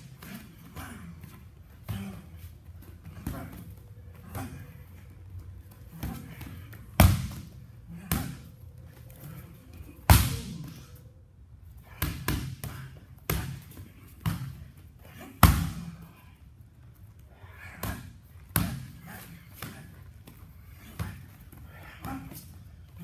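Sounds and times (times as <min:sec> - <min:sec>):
punches and kicks smacking pads: 0:06.0 - 0:08.5, 0:10.0 - 0:10.6, 0:12.0 - 0:14.6, 0:15.4 - 0:16.0.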